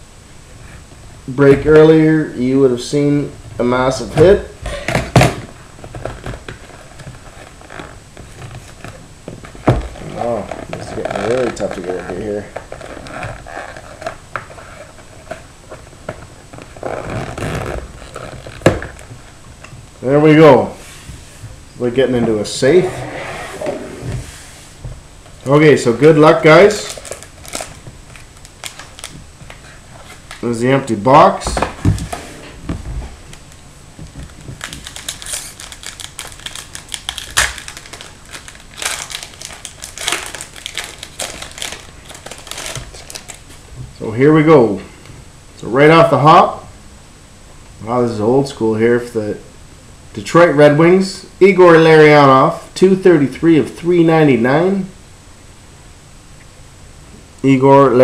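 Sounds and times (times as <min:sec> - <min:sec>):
foil wrapper crinkling and tearing: 0:09.8 - 0:15.5, 0:16.5 - 0:19.1, 0:26.2 - 0:30.5, 0:34.3 - 0:43.5
cardboard scraping and rustling: 0:22.1 - 0:24.9.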